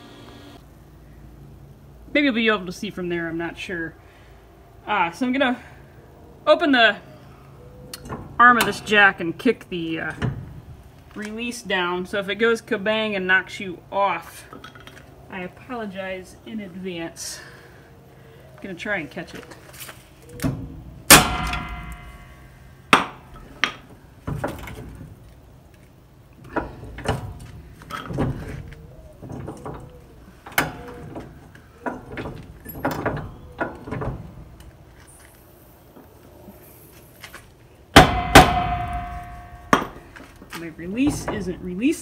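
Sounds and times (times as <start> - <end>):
loud ringing metal clangs: 21.1 - 23.7, 38.0 - 40.2
metal jack knocking and clanking: 26.4 - 34.7, 38.0 - 41.7.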